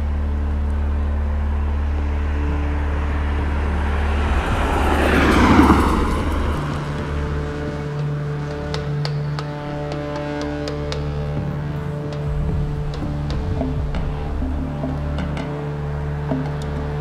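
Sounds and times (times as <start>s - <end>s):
steady low hum: 0.0s - 17.0s
car passing by: 2.2s - 10.9s.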